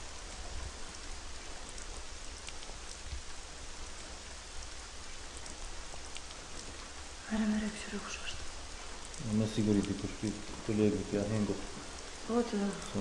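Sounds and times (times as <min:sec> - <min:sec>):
pattering raindrops: 0:00.0 - 0:13.0
steady rain hiss: 0:00.0 - 0:13.0.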